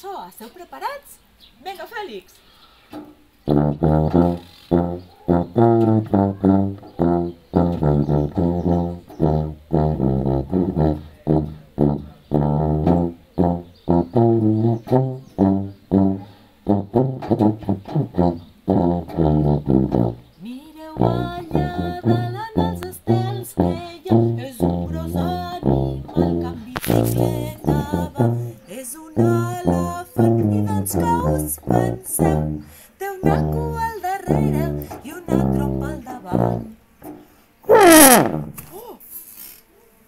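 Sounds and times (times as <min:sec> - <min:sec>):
tuba playing bouncy tune: 0:03.4 - 0:20.4, 0:21.0 - 0:38.6
woman singing: 0:20.4 - 0:36.8.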